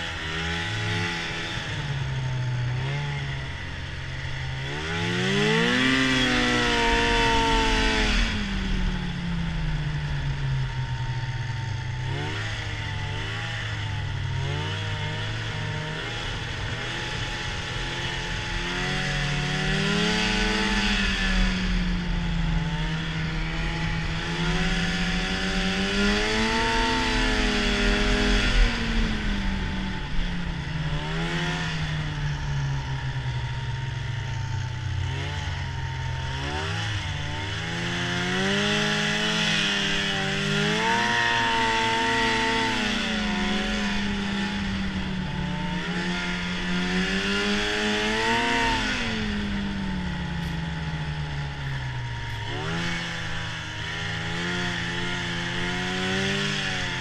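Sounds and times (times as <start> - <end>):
snowmobile engine revving: 0.0 - 57.0
wind rushing over microphone: 18.2 - 34.8.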